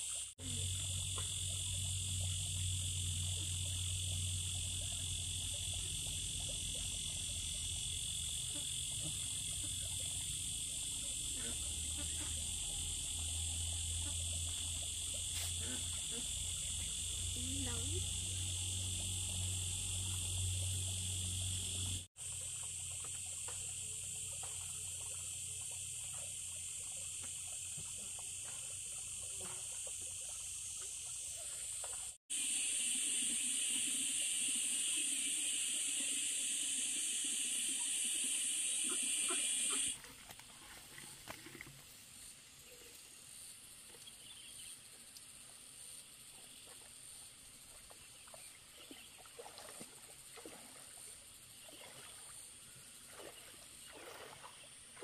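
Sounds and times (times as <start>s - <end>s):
insects buzzing: 0.0s - 40.0s.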